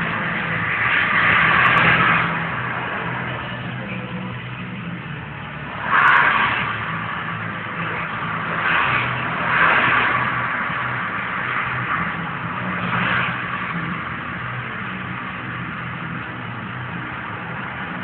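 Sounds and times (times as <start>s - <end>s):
cars driving past: 0.0s - 18.0s.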